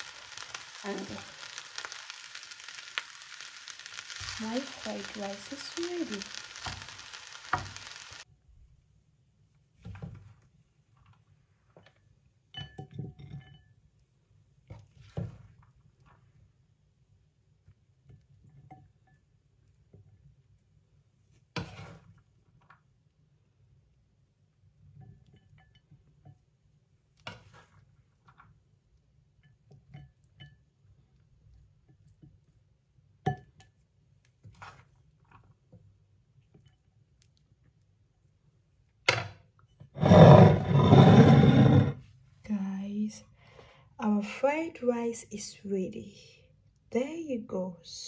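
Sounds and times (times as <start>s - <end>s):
rice sizzling in frying pan: 0.0s - 8.3s, 40.0s - 41.9s
kitchenware clinks and taps: 12.5s - 13.8s.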